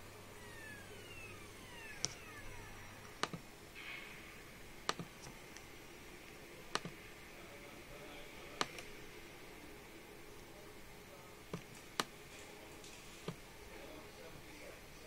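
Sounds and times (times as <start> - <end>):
mouse button clicks: 6.7 - 7.0.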